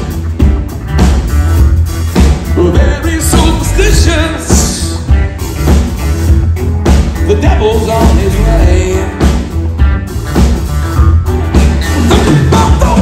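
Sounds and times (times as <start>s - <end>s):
live rock band playing: 0.0s - 13.0s
man singing: 2.5s - 5.0s, 7.2s - 9.4s, 11.9s - 13.0s.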